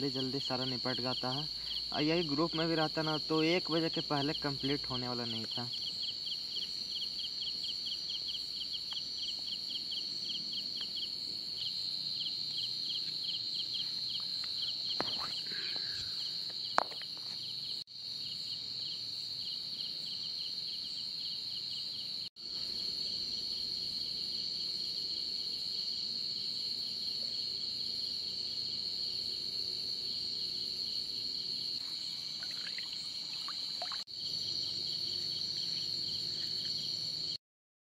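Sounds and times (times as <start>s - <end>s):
insect pulsing: 0.0s - 17.8s, 29.0s - 37.4s
crickets trilling: 0.0s - 37.4s.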